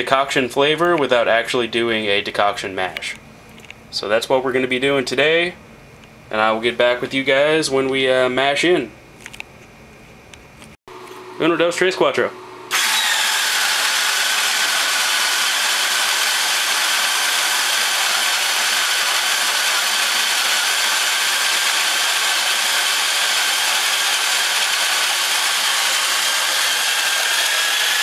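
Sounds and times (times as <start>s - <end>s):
electric drill driving grain mill: 12.7s - 28.0s.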